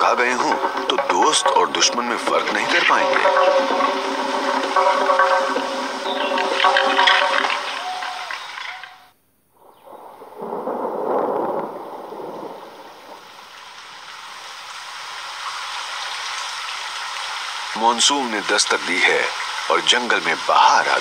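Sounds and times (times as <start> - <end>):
held pitched tones: 0.0 - 9.1
rain falling on water: 0.0 - 9.2, 9.8 - 21.0.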